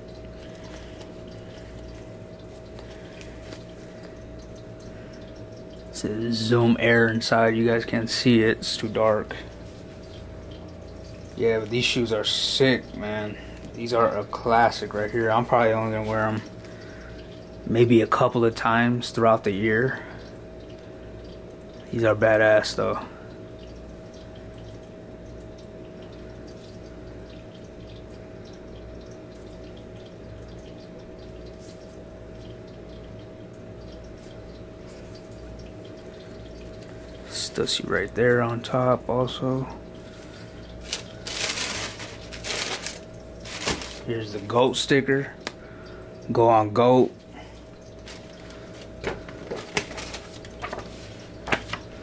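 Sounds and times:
faint constant tone: 0.0s - 52.0s
faint steady hum: 0.0s - 52.0s
paper crinkling and rustling: 40.8s - 44.1s, 48.0s - 52.0s
sneaker handling rustles: 40.9s - 44.1s.

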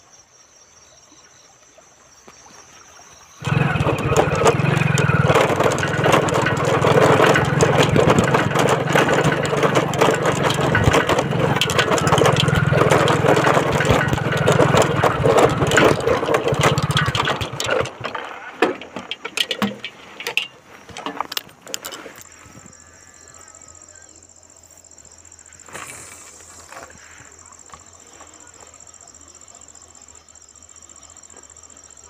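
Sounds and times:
motorcycle engine running: 3.4s - 20.4s
knocks and rattles: 3.4s - 22.3s.

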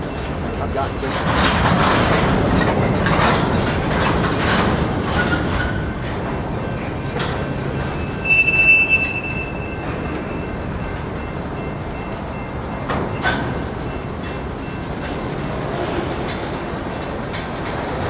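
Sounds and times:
freight train rolling: 0.0s - 18.0s
wheels clicking over rail joints: 0.0s - 18.0s
high metallic squeal: 8.1s - 10.1s.

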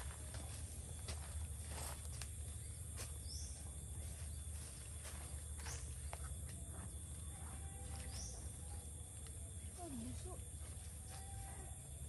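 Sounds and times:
constant thin tone: 0.0s - 12.0s.

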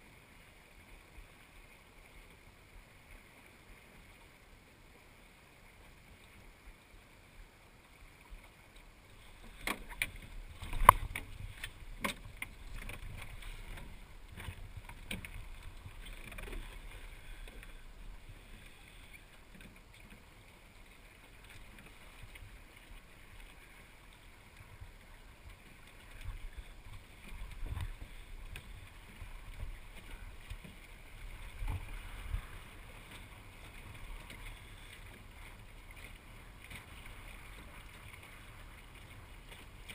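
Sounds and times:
water rushing along a hull: 0.0s - 39.9s
boat knocks and clatter: 9.3s - 17.8s
wind on the microphone: 31.2s - 33.0s.

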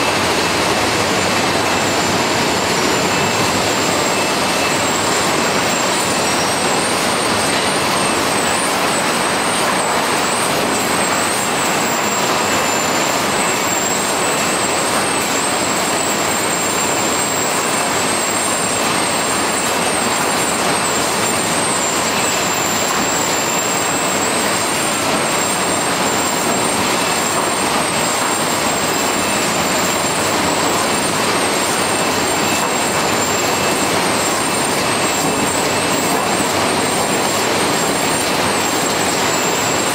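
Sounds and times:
high whine: 0.0s - 14.0s
processing line machinery: 0.0s - 39.9s.

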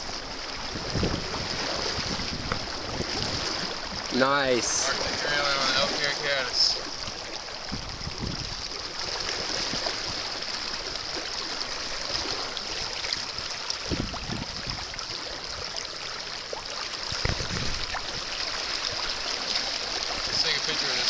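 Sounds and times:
river water rushing and splashing: 0.0s - 21.0s
low thumps in water: 13.1s - 15.0s, 17.1s - 20.5s.

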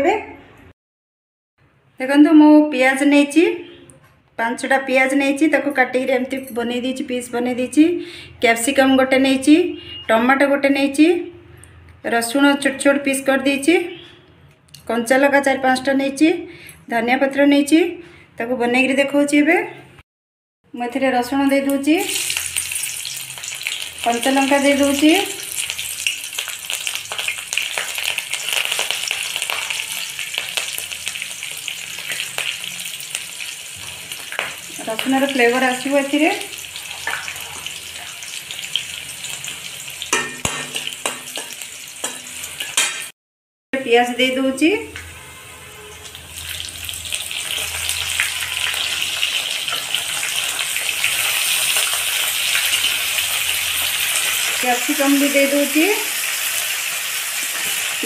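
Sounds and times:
garlic sizzling in hot oil: 21.6s - 43.1s, 44.9s - 58.0s.

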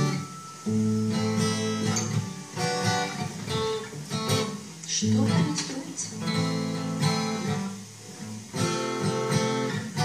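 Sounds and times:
acoustic guitar strumming chords: 0.0s - 10.0s.

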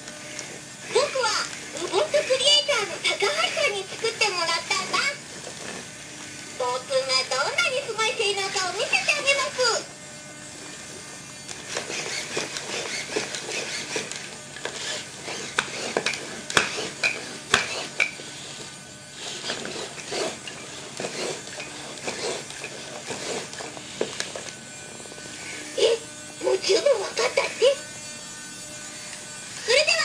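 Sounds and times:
robot legs clicking on tabletop: 14.7s - 18.2s.

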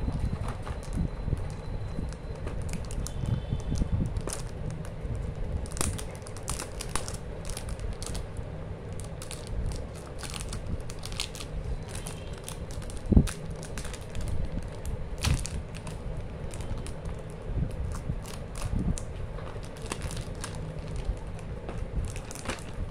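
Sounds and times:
plastic shrink-wrap crinkling: 0.0s - 22.9s.

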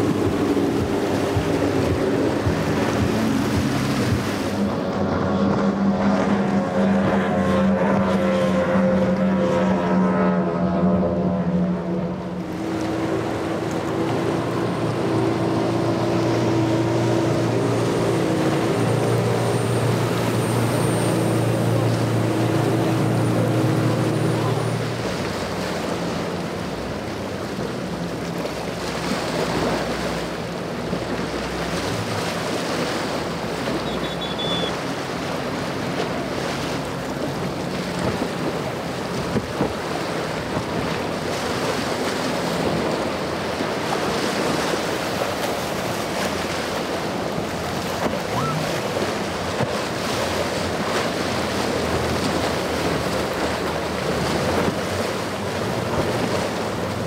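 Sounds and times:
wind buffeting microphone: 0.0s - 9.5s
boat engine drone: 0.0s - 57.0s
hull slapping a wave: 0.0s - 57.0s
rushing wash and waves: 0.0s - 57.0s.

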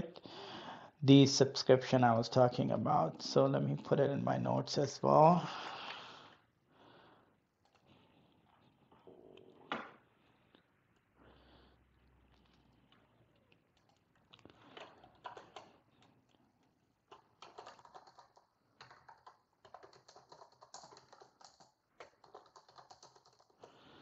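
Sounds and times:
typing on computer keyboard: 13.8s - 16.4s, 17.0s - 24.0s.

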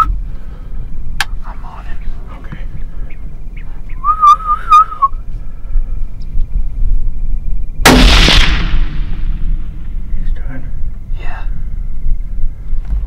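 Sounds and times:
short wavering whistle: 4.0s - 5.2s
rifle shot: 7.8s - 10.1s.

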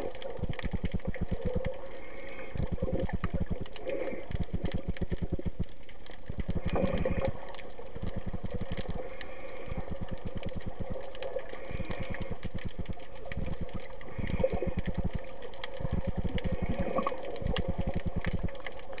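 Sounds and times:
rapid low underwater pulsing: 0.0s - 19.0s
faint hiss: 6.7s - 17.9s.

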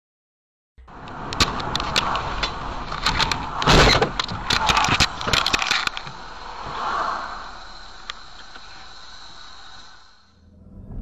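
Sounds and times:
car crash: 0.8s - 11.0s
road noise inside car: 0.8s - 11.0s
knocks and rattles: 1.2s - 6.2s.

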